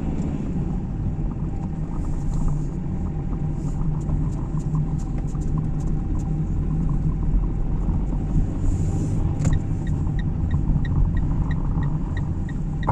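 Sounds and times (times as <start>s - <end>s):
car engine and road noise: 0.0s - 12.9s
light regular ticking: 9.4s - 12.9s.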